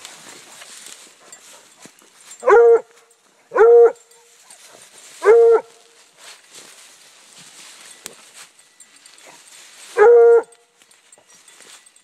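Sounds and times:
dog barking: 2.4 - 2.9, 3.5 - 4.0, 5.2 - 5.7, 10.0 - 10.5.

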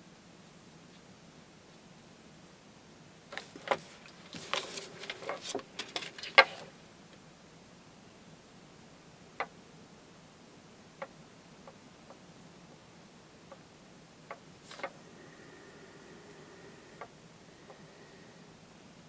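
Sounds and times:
card rustling on a desk: 3.3 - 6.7, 14.7 - 15.0.

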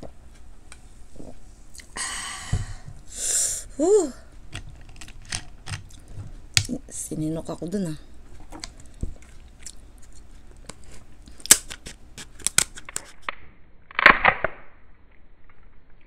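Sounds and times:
crab shell cracking: 4.5 - 6.8, 8.4 - 13.3
scissors cutting crab shell: 11.5 - 13.1.

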